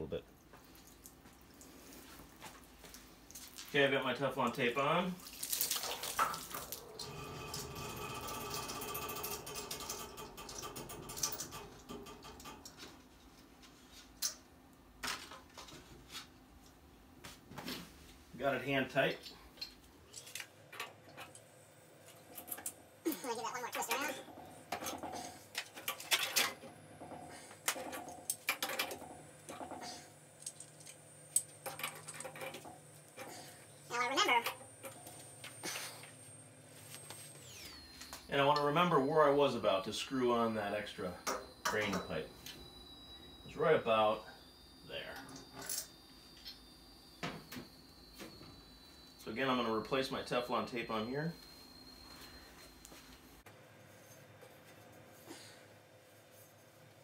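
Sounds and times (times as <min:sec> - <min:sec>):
valve threads rasping: 0:06.7 - 0:12.8.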